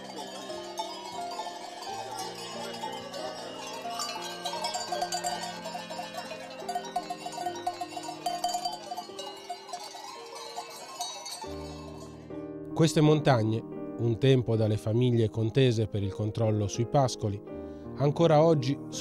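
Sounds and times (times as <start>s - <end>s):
cowbells clanking: 0.0s - 12.3s
quiet background music: 0.0s - 19.0s.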